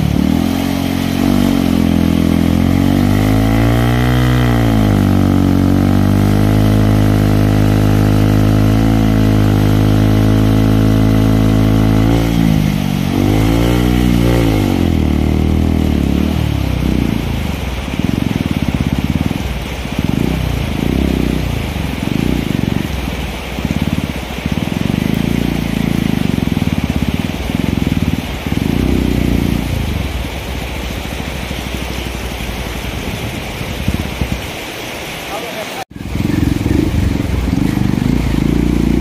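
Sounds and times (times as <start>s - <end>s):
motorcycle engine revving: 0.0s - 34.8s, 35.9s - 39.0s.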